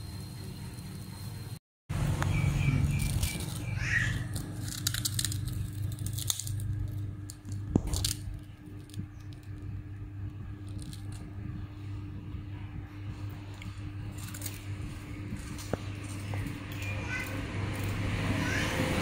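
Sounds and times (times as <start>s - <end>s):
low hum: 0.0s - 19.0s
child crunching crispy crackers: 2.9s - 9.5s, 14.1s - 16.3s.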